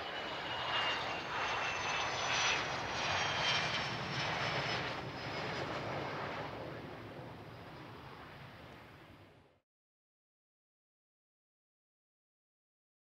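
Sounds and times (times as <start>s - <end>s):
jet engines rushing with high whine: 0.0s - 9.6s.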